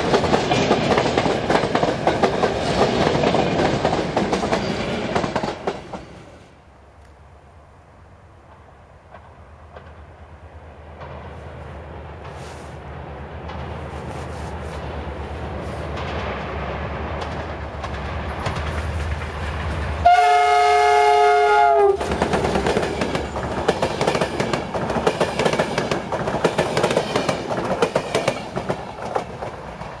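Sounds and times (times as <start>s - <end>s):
wheels clacking over rail joints: 0.0s - 6.2s, 15.6s - 20.1s, 21.9s - 30.0s
train rumbling: 0.0s - 30.0s
locomotive multi-tone horn: 20.0s - 22.0s.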